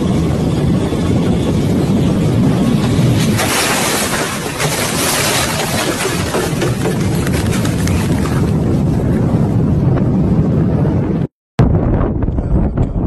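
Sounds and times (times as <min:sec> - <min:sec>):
wind rumbling on microphone: 0:00.0 - 0:13.0
debris scattering: 0:03.1 - 0:07.6
vehicle crash with crunching metal: 0:03.2 - 0:06.9.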